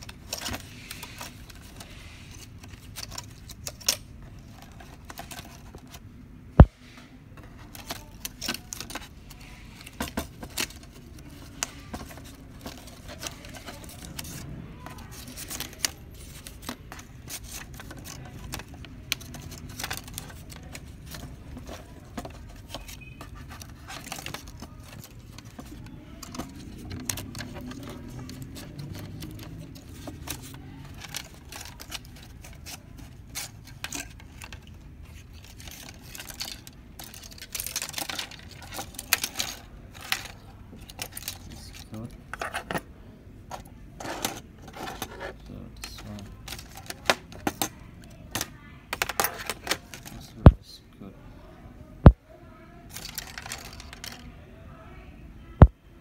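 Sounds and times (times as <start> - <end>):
hands clicking plastic printer parts: 7.6 - 42.7, 43.5 - 50.6.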